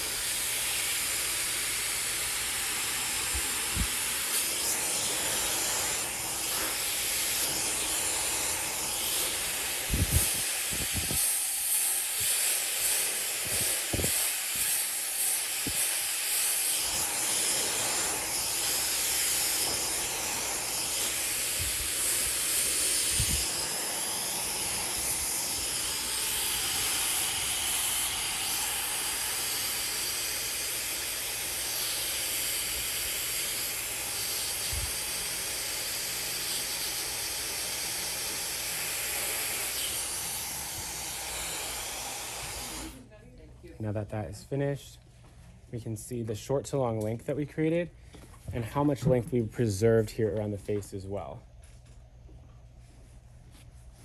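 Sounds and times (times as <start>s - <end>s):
hair dryer blowing: 0.0s - 43.1s.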